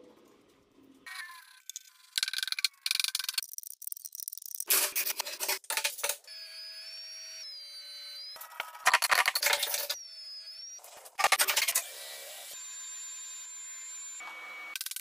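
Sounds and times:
planer motor whine: 12.4 - 14.8.

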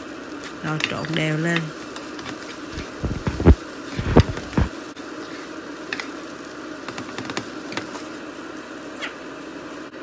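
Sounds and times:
steady background hum: 0.0 - 10.0
spatula scraping frying pan: 2.0 - 6.1.

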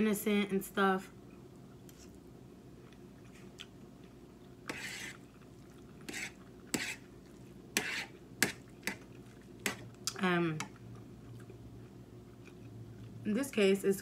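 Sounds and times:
fork scraping a plate: 4.7 - 5.3, 6.0 - 7.1, 7.8 - 9.0.

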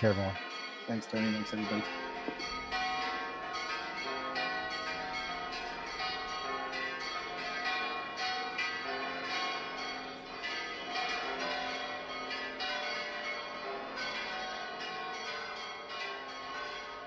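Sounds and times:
church bells ringing: 0.0 - 17.0.

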